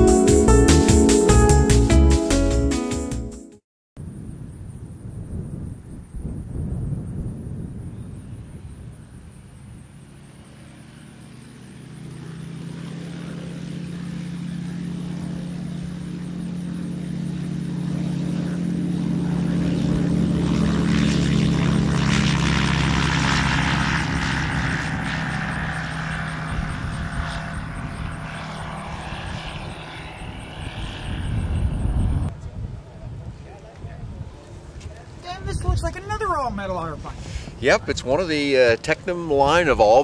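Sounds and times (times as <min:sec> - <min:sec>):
light aircraft engine and propeller: 0:04.0 - 0:40.0.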